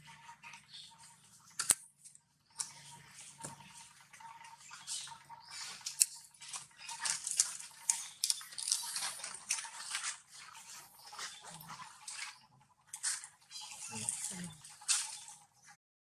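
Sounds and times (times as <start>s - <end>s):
dry leaves rustling and crackling: 6.4s - 12.2s.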